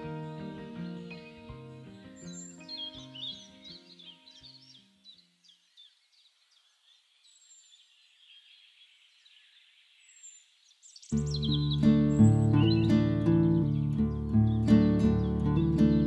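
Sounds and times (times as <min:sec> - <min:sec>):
loud guitar piece: 0:00.0 - 0:04.1, 0:11.2 - 0:16.0
acoustic guitar music: 0:00.0 - 0:05.0, 0:11.1 - 0:16.0
small songbirds chirping: 0:00.0 - 0:16.0.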